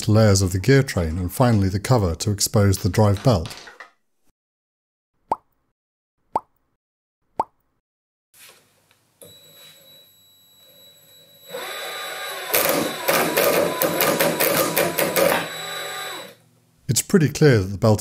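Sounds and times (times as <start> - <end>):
lathe motor running: 11.4 - 16.4.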